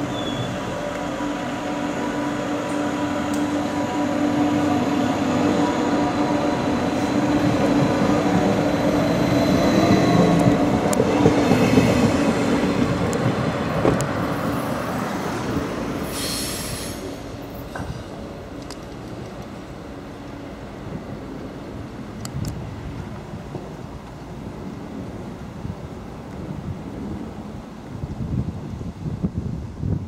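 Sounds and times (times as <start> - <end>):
high-pitched wheel squeal: 0.0 - 0.7
train passing with rumble: 0.0 - 30.0.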